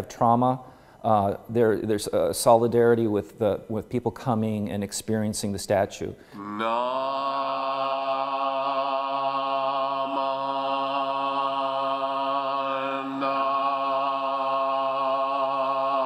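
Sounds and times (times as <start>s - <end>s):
voices chanting on one pitch: 6.3s - 16.0s.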